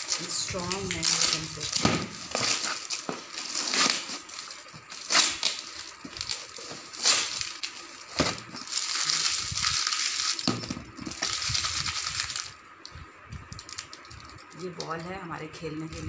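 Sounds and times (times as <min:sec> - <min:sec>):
plastic wrapping crinkling: 0:00.0 - 0:16.0.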